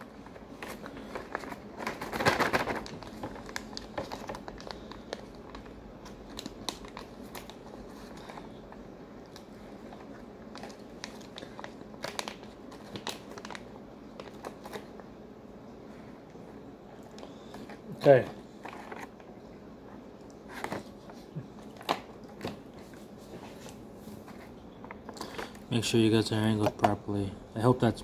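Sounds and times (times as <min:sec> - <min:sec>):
foil pouch crinkling: 0:00.0 - 0:08.6, 0:09.3 - 0:15.0.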